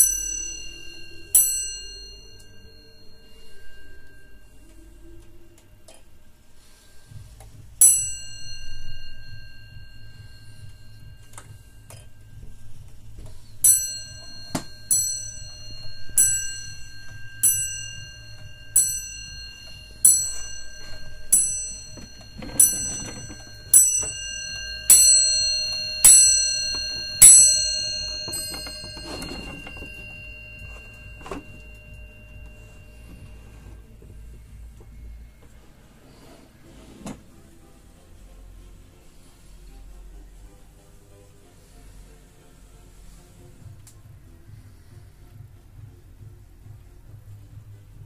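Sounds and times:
clock bell striking: 0:00.0 - 0:35.6
wall clock ticking: 0:04.1 - 0:35.0.

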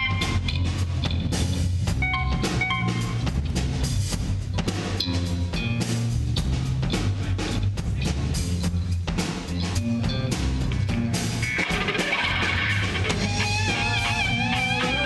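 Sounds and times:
bass guitar: 0:00.0 - 0:15.0
drum kit steady beat: 0:00.0 - 0:15.0
electric guitar: 0:09.6 - 0:15.0.

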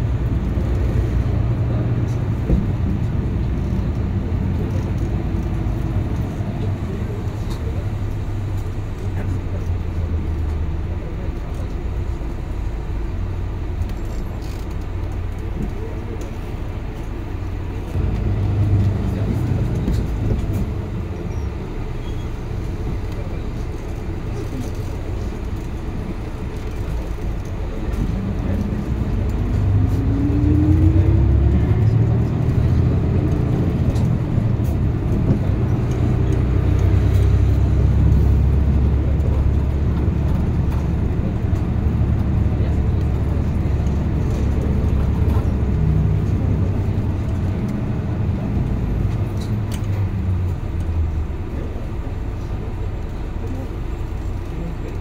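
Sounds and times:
bus drivetrain whine: 0:00.0 - 0:55.0
bus engine and road rumble: 0:00.0 - 0:55.0.

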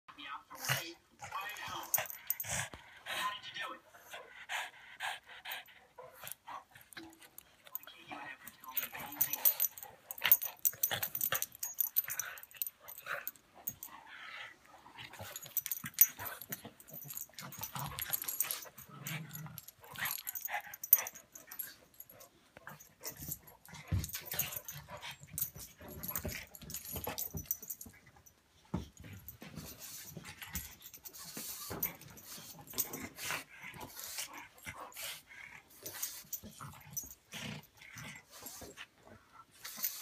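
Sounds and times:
metal collar tags jingling: 0:01.3 - 0:02.7, 0:04.3 - 0:38.8
dogs growling: 0:08.7 - 0:27.8, 0:32.6 - 0:38.8.

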